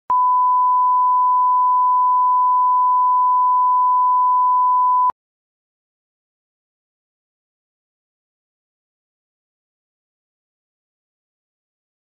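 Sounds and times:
pure test tone beep: 0.1s - 5.1s.

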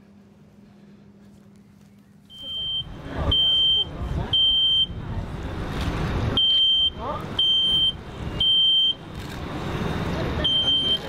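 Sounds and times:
smoke alarm beeping: 2.3s - 4.9s.

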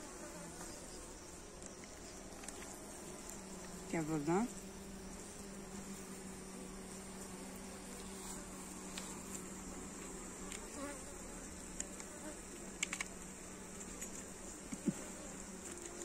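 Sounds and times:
honeybees buzzing: 0.0s - 16.0s
light clicks: 11.8s - 14.9s.

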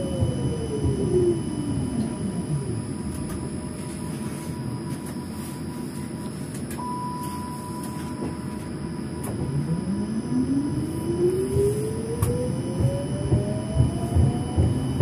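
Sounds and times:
low hum: 0.0s - 15.0s
tram motor whine: 0.0s - 15.0s
steady beep: 6.8s - 8.6s, 9.9s - 15.0s.

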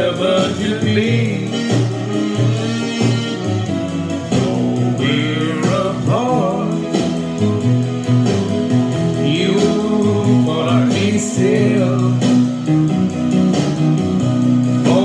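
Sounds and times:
man singing: 0.0s - 2.4s, 4.3s - 7.5s, 9.1s - 12.8s, 14.8s - 15.0s
guitar accompaniment: 0.0s - 15.0s.

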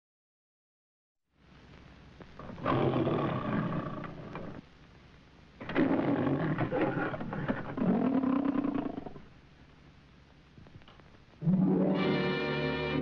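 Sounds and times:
old film soundtrack hiss and crackle: 1.3s - 13.0s
lion roaring: 2.4s - 4.6s, 5.6s - 9.3s.

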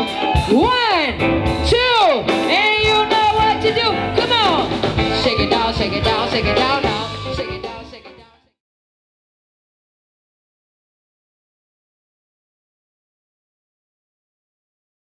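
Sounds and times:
live band with electric guitar: 0.0s - 8.5s.

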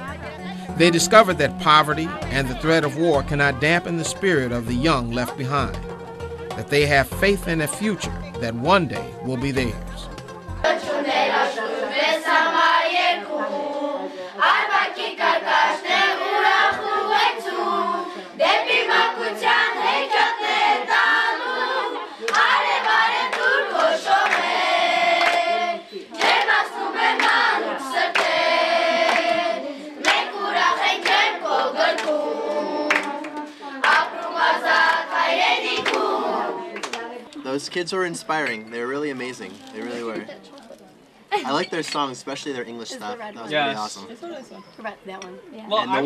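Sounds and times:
children singing together: 10.6s - 36.9s
hands clapping: 22.3s - 24.5s, 25.2s - 25.5s, 26.2s - 26.6s, 27.2s - 27.4s, 28.1s - 28.4s, 29.1s - 29.4s, 30.0s - 30.3s, 31.0s - 31.3s, 31.9s - 35.0s, 35.7s - 36.1s, 36.7s - 37.4s.

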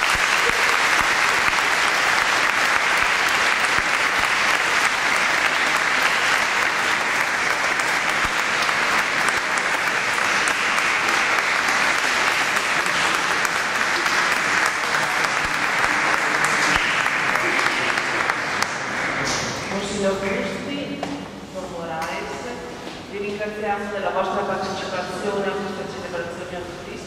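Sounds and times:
congregation applauding: 0.0s - 19.8s.

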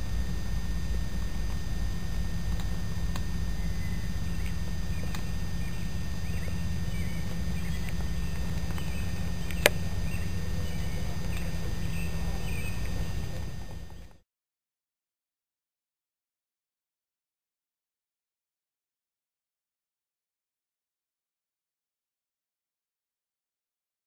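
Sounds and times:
faint high chirps: 0.0s - 14.2s
steady low rumble: 0.0s - 14.2s.

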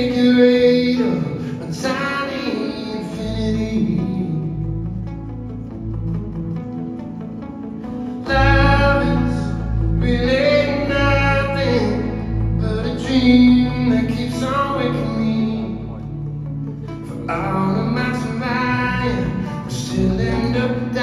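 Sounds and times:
man singing: 0.0s - 5.0s, 8.2s - 16.3s, 17.0s - 21.0s
acoustic guitar: 0.0s - 21.0s.

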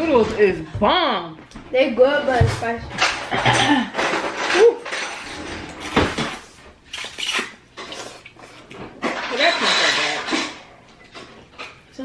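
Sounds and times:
dishes and cutlery clattering: 2.2s - 6.4s, 8.8s - 11.9s.

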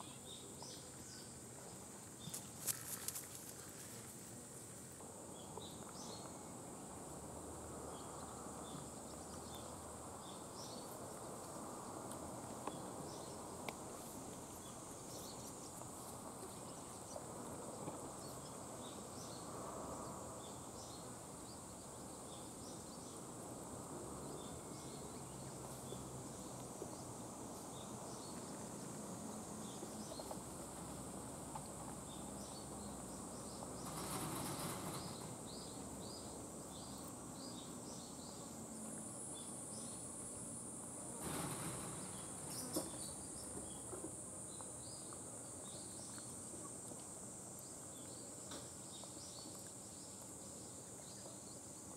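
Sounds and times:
rustles: 0.0s - 6.8s, 8.0s - 51.9s
insect chirps: 0.0s - 51.9s
insect buzzing: 33.4s - 51.9s.

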